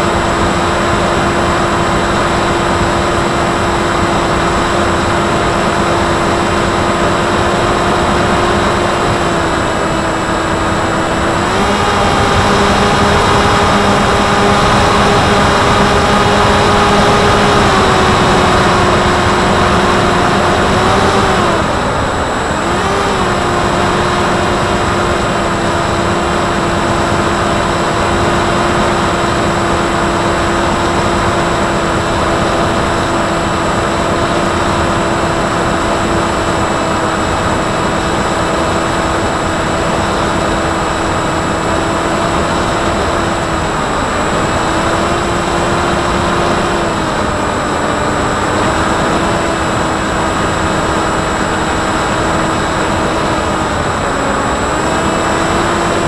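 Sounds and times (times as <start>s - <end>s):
electric motor and propeller hum: 0.0s - 56.0s.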